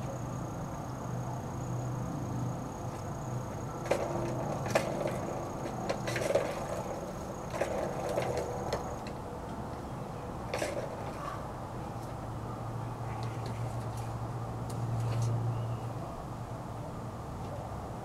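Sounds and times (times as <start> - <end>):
plastic ball rattling in track toy: 3.8 - 9.1, 10.5 - 11.2.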